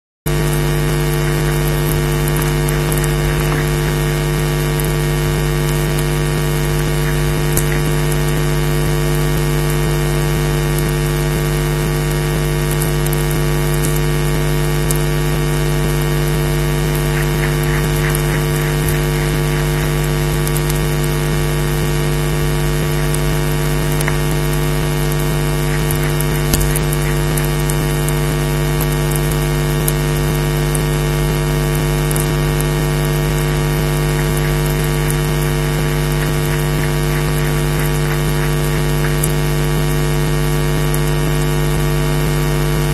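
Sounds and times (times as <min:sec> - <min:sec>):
faint clicks: 0:00.3 - 0:09.2, 0:12.7 - 0:14.0, 0:16.8 - 0:21.3, 0:22.8 - 0:28.2, 0:32.1 - 0:32.7, 0:33.4 - 0:40.0
constant hiss: 0:00.3 - 0:41.4
electrical hum: 0:00.3 - 0:42.9.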